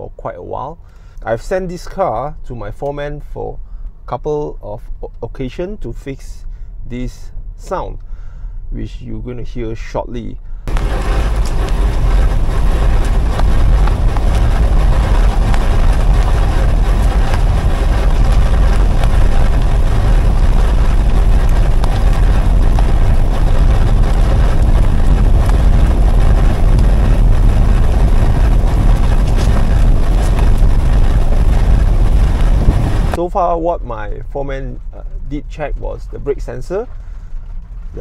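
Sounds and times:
tyre and wind noise: 10.6 - 38.0
soft grinding from rear wheel: 10.7 - 33.2.

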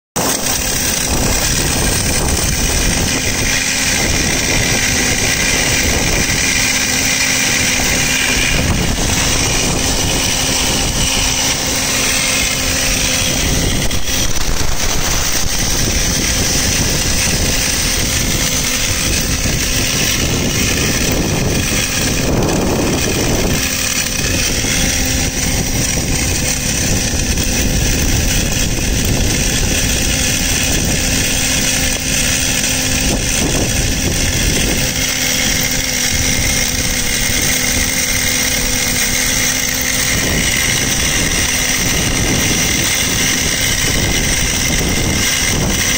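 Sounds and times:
cable blowing machine drone: 0.2 - 45.9
air hissing: 1.1 - 24.9.

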